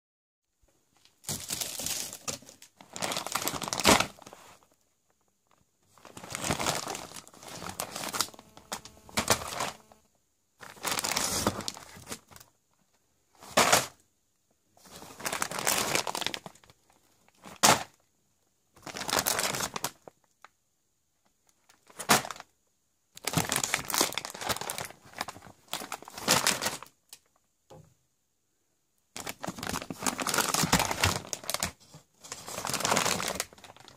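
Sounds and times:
plastic bags crinkling: 1.0 - 4.8, 5.4 - 10.0, 10.6 - 12.5, 14.8 - 18.0, 18.8 - 20.2, 21.5 - 22.5, 23.2 - 27.4, 29.2 - 31.8, 32.4 - 33.9
packs knocking down: 7.6 - 9.8.

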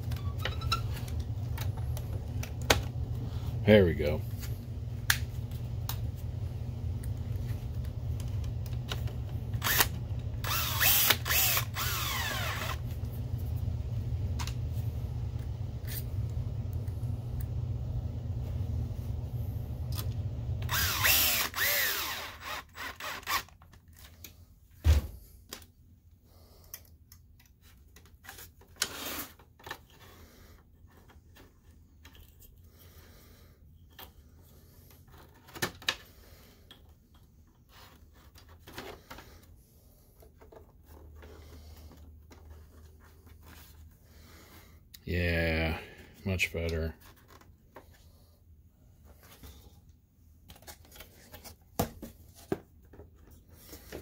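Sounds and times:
low steady hum: 0.0 - 23.3
electric screwdriver whirring: 9.5 - 12.8, 20.6 - 23.6.

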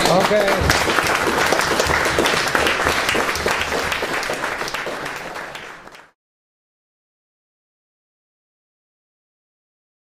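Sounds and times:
crowd applauding: 0.0 - 6.2.

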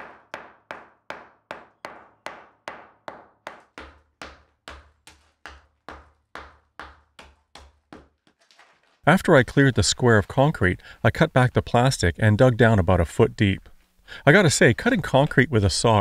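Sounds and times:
hammer breaking concrete: 0.0 - 8.1.

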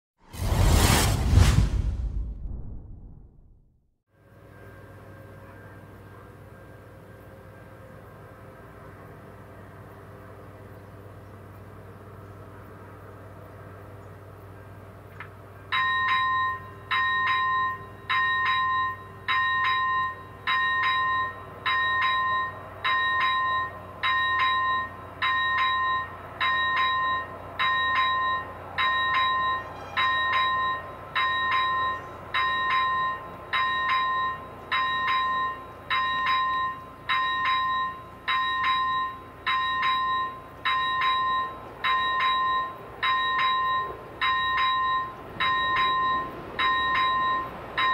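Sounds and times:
level crossing warning bell: 15.6 - 47.9.

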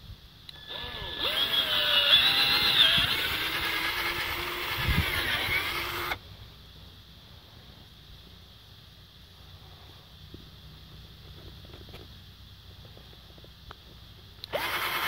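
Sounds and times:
cordless drill whining: 0.5 - 6.2, 14.4 - 15.0.

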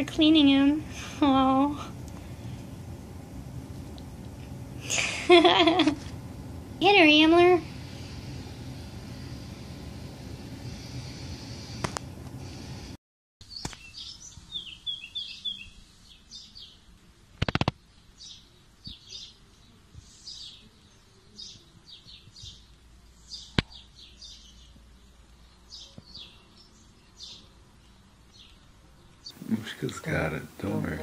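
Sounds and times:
small birds chirping: 13.4 - 31.0.

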